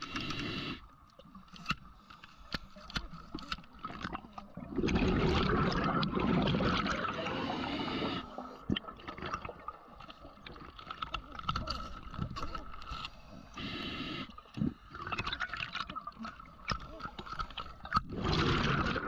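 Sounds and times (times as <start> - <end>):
underwater breath bubbles: 0.0 - 0.9, 3.9 - 10.5, 12.5 - 19.0.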